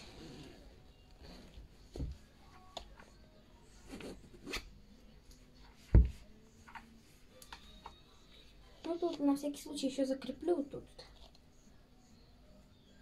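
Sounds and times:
zip being done up: 0.0s - 1.5s.

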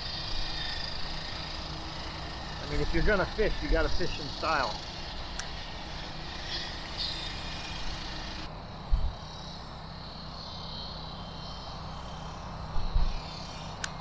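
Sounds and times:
highway traffic rumble: 0.0s - 9.9s.

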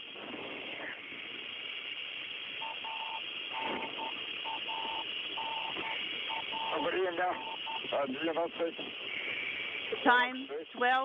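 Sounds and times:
radio static hiss: 0.0s - 11.0s
beeping tone: 2.6s - 7.9s.

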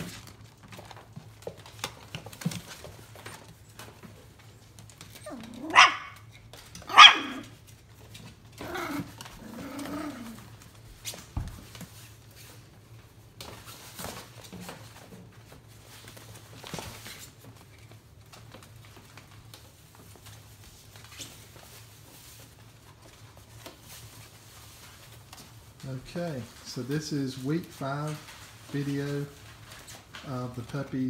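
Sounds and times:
puppy vocal sounds: 5.2s - 6.2s, 8.5s - 10.7s.

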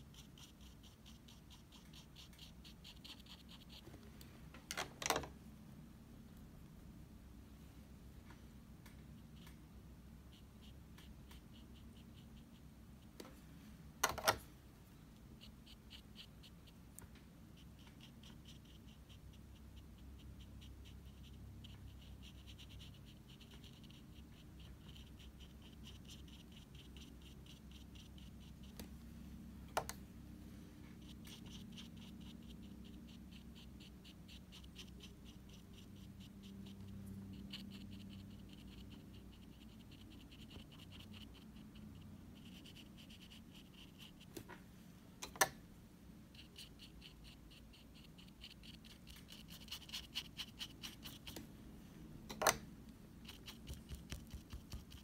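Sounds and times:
brush scratching on paper: 0.0s - 3.9s, 15.2s - 28.8s, 30.9s - 44.4s, 46.3s - 51.5s, 53.2s - 55.0s.

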